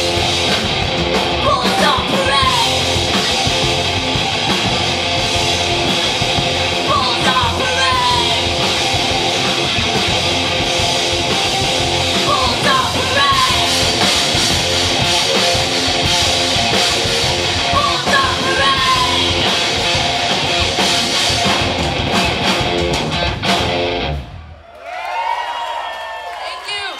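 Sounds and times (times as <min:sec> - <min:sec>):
distorted guitar: 0:00.0 - 0:24.4
live heavy rock band: 0:00.0 - 0:24.4
shouted vocals: 0:01.4 - 0:02.8, 0:06.8 - 0:08.6, 0:12.2 - 0:13.8, 0:17.7 - 0:19.4, 0:24.7 - 0:26.9.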